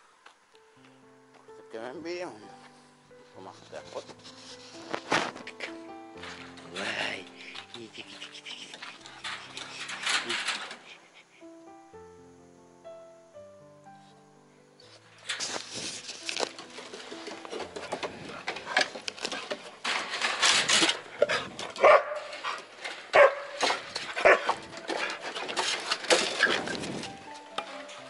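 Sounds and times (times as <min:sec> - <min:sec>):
wooden door and wire mesh clattering: 0:04.9 - 0:11.0, 0:15.2 - 0:28.0
dog barking: 0:21.8 - 0:22.3, 0:23.1 - 0:23.6, 0:24.2 - 0:24.6.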